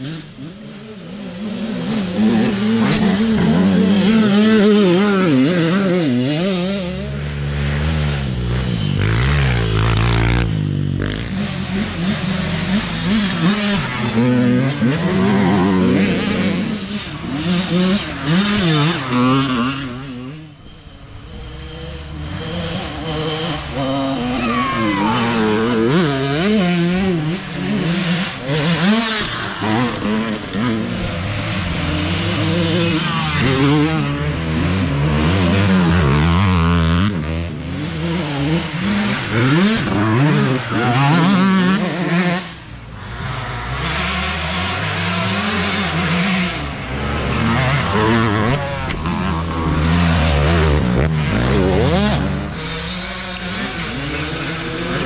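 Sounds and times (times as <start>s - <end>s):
dirt bikes revving past: 0.0s - 55.0s.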